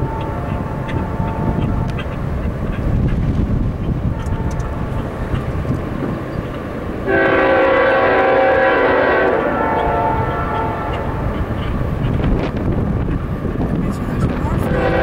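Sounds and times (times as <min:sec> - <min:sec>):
locomotive air horn blast: 0:07.0 - 0:11.4, 0:14.6 - 0:15.0.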